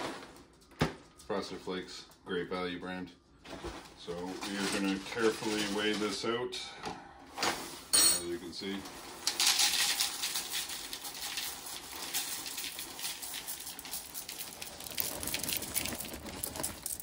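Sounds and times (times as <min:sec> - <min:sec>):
cereal flakes pattering into bowl: 0:08.8 - 0:17.0.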